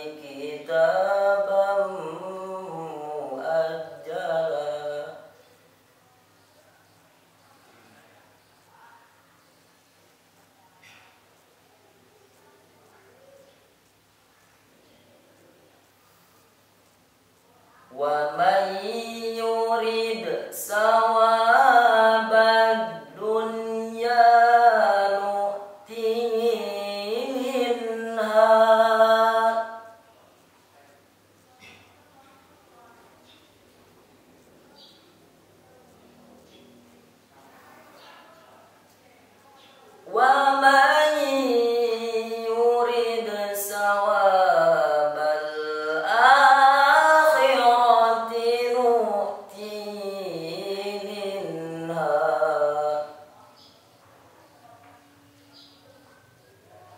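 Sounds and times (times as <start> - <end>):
boy chanting melodically: 0.0 - 5.6, 17.7 - 30.8, 39.6 - 55.8.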